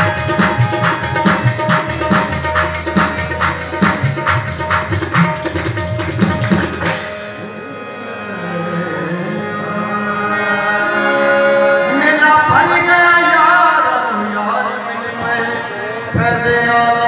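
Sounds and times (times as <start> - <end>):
fast hand-drum rhythm: 0.0 - 7.2
harmonium chords: 0.0 - 17.0
man singing: 11.7 - 17.0.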